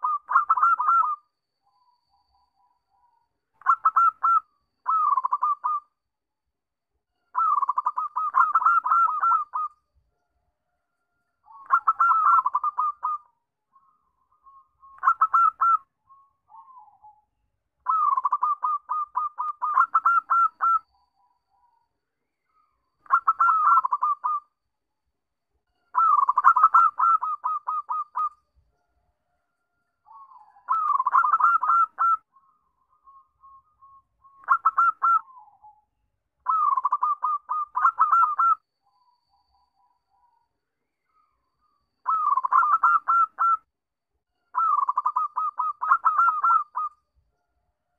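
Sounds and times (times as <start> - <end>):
dove cooing: 0.0 - 1.2, 3.6 - 5.8, 7.4 - 9.7, 11.5 - 13.3, 15.0 - 15.9, 17.8 - 20.8, 23.1 - 24.4, 26.0 - 28.3, 30.1 - 32.2, 34.4 - 35.6, 36.4 - 38.6, 42.0 - 43.6, 44.6 - 46.9.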